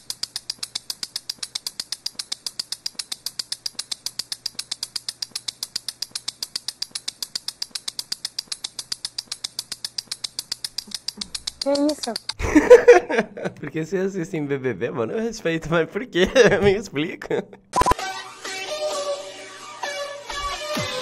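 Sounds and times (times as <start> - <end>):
rapid high-pitched clicks: 0.0 - 12.4.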